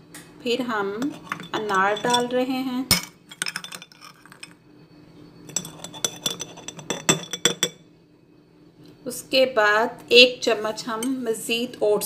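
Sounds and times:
spoon clinking against glass jar: 1.0 - 4.6, 5.4 - 7.8.

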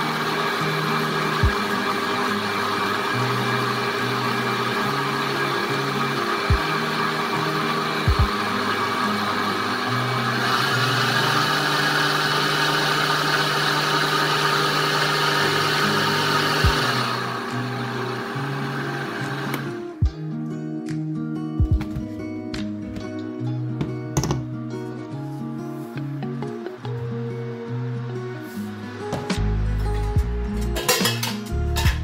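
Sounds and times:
blender running: 0.0 - 20.0
background music with bass line: 1.1 - 1.7, 3.2 - 10.3, 19.6 - 32.0.

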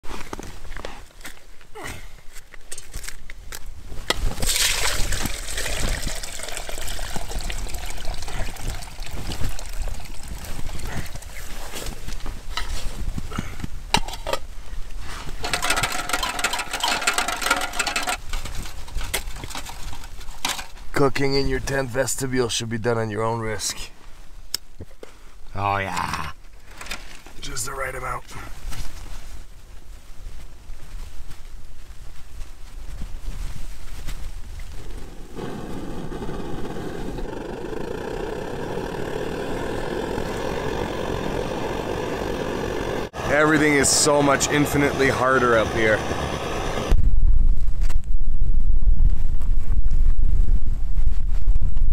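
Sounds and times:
rustling and scraping of gear: 0.0 - 4.4, 10.4 - 20.9, 26.4 - 27.4, 28.3 - 39.0
stove flame fluttering: 3.9 - 21.0, 32.8 - 47.0
stove burner roaring: 15.4 - 18.2, 34.8 - 47.0.

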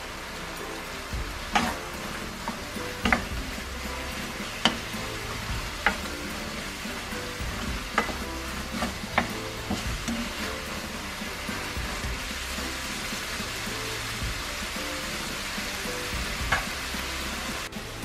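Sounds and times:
glaze sizzling in a wok: 0.0 - 18.0
spatula knocking against pan: 1.2 - 10.9, 16.2 - 16.8.

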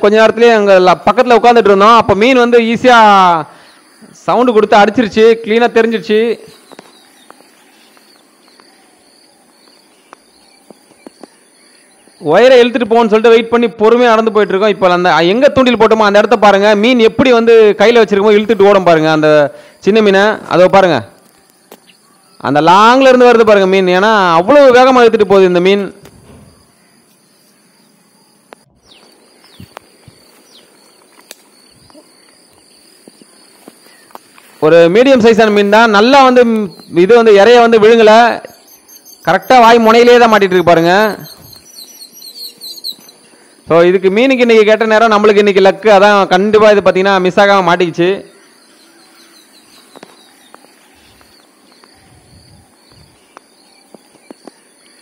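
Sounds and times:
high insect drone: 2.2 - 16.9, 17.8 - 23.1, 25.9 - 45.2, 46.6 - 55.0
falling bird chirps: 6.0 - 12.5, 21.2 - 22.7, 26.0 - 43.7, 48.3 - 55.0
footsteps in wet mud: 28.9 - 34.7.

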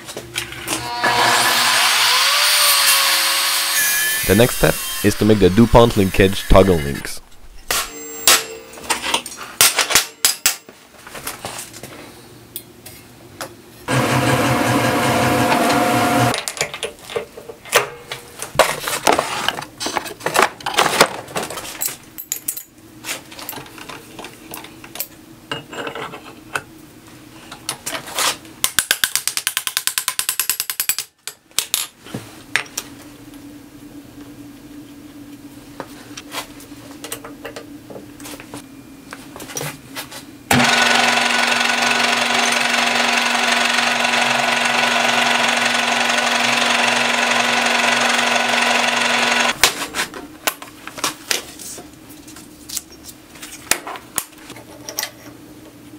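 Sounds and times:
drill press motor humming: 0.8 - 6.6, 13.9 - 16.4, 40.5 - 49.6
machine running loudly: 4.0 - 8.0, 13.9 - 16.4, 40.5 - 49.6.

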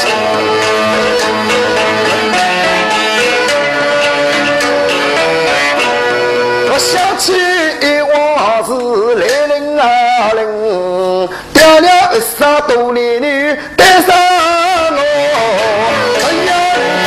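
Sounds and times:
instrumental opera accompaniment: 0.0 - 17.0
singer with vibrato: 6.7 - 17.0.

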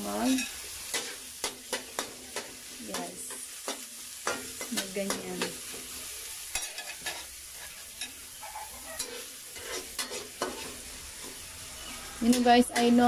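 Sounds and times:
vegetables sizzling in oil: 0.0 - 13.0
spatula scraping metal pan: 6.6 - 13.0.

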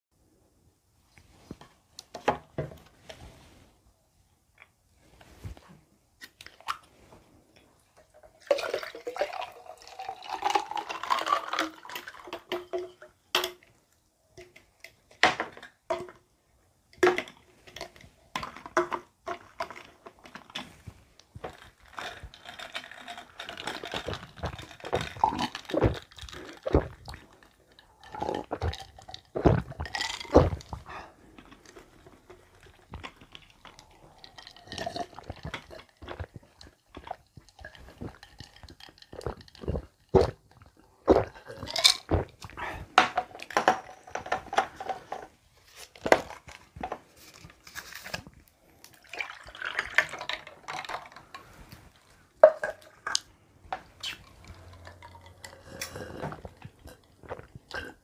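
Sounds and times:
coffee pouring into glass: 8.4 - 12.8, 48.9 - 51.3
ice clinking: 8.4 - 13.1, 49.0 - 51.5.

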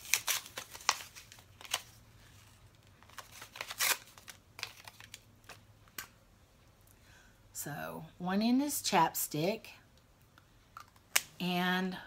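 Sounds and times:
packaging rustling: 0.0 - 5.6.

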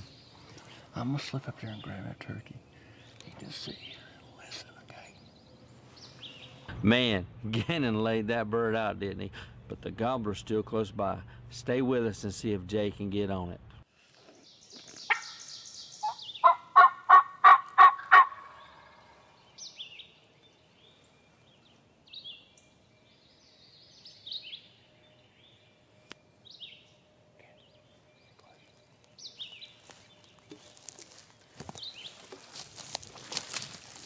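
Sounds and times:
songbirds chirping: 0.0 - 34.0
turkey yelping: 15.1 - 15.4, 16.0 - 19.1.

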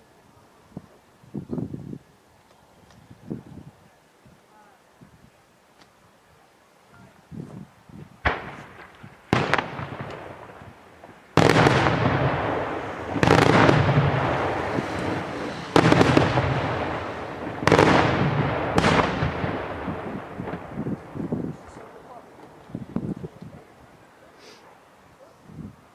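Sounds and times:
fireworks bangs with echoing rumble: 8.2 - 22.6.

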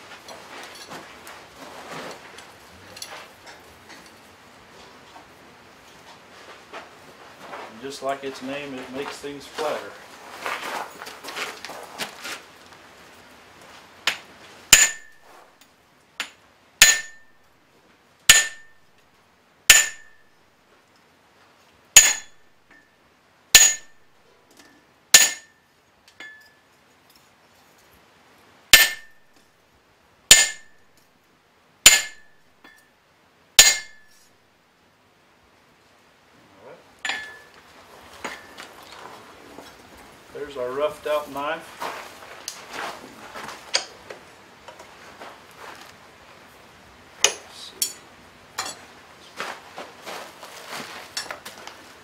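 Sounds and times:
hammer striking metal on anvil: 14.1 - 15.2, 16.2 - 17.4, 18.3 - 18.9, 19.7 - 20.2, 22.0 - 22.9, 23.6 - 24.0, 25.2 - 26.6, 28.7 - 29.2, 30.3 - 30.8, 31.8 - 32.9, 33.6 - 34.2, 37.0 - 37.5, 47.2 - 48.0
high metallic ring: 14.7 - 15.3, 16.8 - 17.5, 18.3 - 18.9, 19.7 - 20.3, 22.0 - 23.0, 23.6 - 27.2, 28.7 - 29.3, 30.3 - 31.0, 31.8 - 33.0, 33.6 - 34.2, 37.0 - 37.6.

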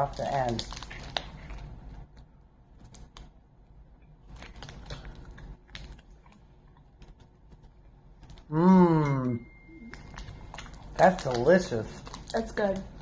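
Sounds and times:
chocolate bar breaking: 0.0 - 1.5
chocolate wrapper crinkling: 0.0 - 3.4, 4.0 - 8.5, 9.7 - 13.0
person humming: 8.5 - 9.5.

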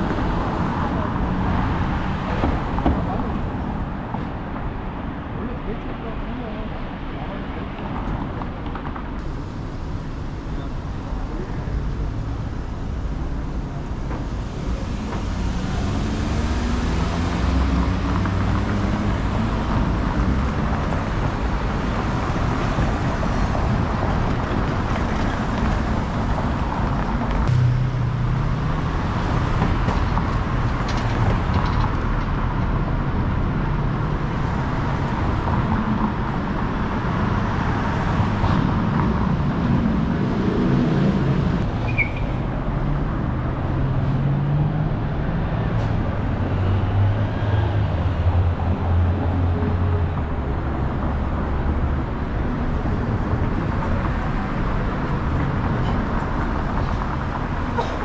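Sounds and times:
traffic rumble: 0.0 - 58.0
loud vehicle engine: 9.2 - 58.0
engine revving pulling away: 14.4 - 21.1.

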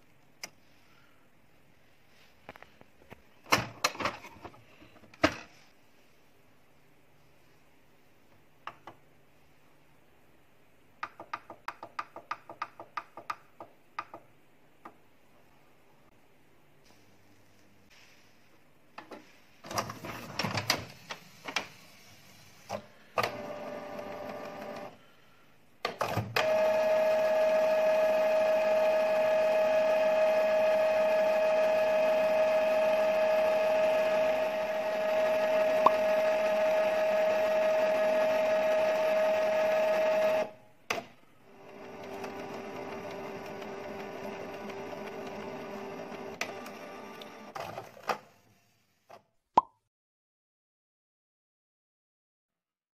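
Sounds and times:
printer motor whine: 23.2 - 24.9, 26.1 - 40.5, 41.5 - 47.7.

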